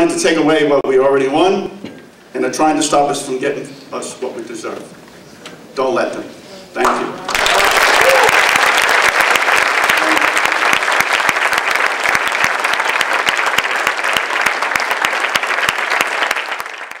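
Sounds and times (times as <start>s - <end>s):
audience applauding: 6.8s - 17.0s.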